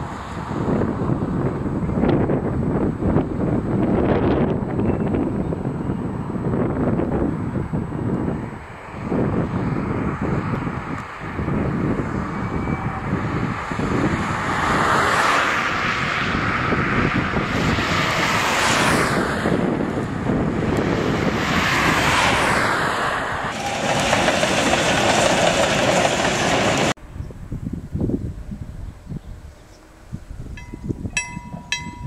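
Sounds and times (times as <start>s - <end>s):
steam locomotive rushing: 10.4s - 27.0s.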